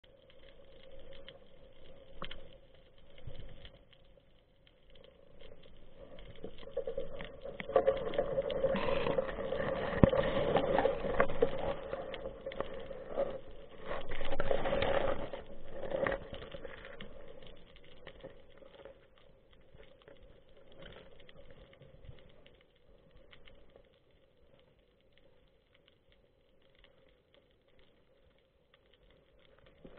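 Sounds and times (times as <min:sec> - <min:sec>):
underwater crackling and scraping: 0:00.0 - 0:25.9, 0:26.6 - 0:29.9
steady low underwater tone: 0:00.0 - 0:29.9.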